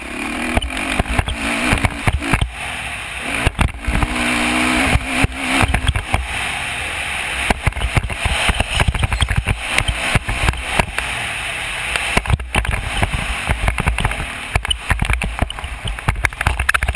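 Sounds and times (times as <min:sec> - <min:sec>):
dirt bike engine: 0:00.0 - 0:16.9
irregular knocks and thumps: 0:00.5 - 0:02.6, 0:03.4 - 0:04.2, 0:04.9 - 0:06.3, 0:07.5 - 0:11.0, 0:12.0 - 0:16.9.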